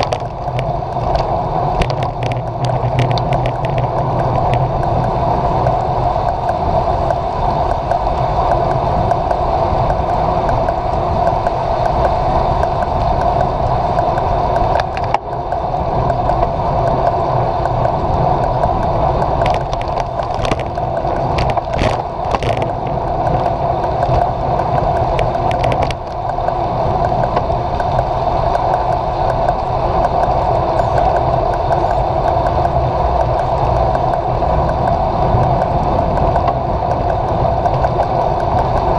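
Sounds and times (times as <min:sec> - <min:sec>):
wind and road noise: 0:00.0 - 0:38.9.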